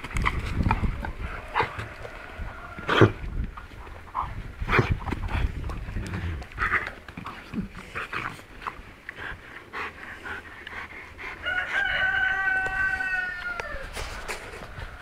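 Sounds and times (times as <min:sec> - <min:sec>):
dog and pig noises: 0:00.2 - 0:03.2
rooster crowing: 0:01.2 - 0:02.9, 0:11.4 - 0:15.0.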